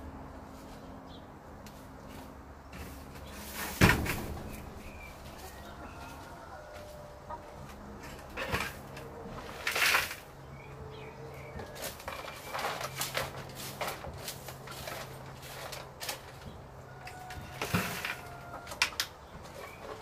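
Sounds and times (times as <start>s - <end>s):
rustling mulch: 1.7s - 18.7s
hens clucking softly: 5.2s - 9.6s.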